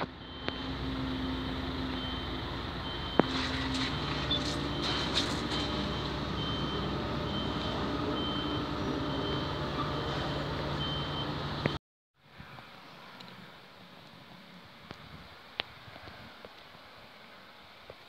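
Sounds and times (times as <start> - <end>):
diesel engine running: 0.0 - 11.8
reversing alarm beeping: 0.2 - 11.8.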